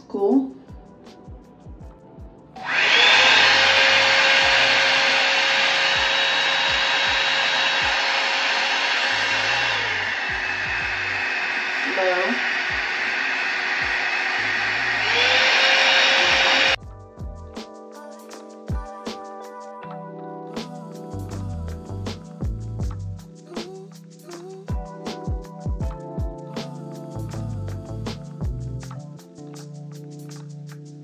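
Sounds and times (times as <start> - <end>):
hair dryer fan motor whine: 2.6 - 16.8
rushing air: 2.6 - 16.8.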